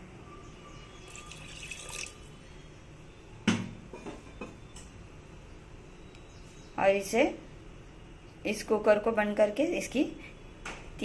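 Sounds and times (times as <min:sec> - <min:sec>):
water pouring into pot: 0:01.0 - 0:02.3.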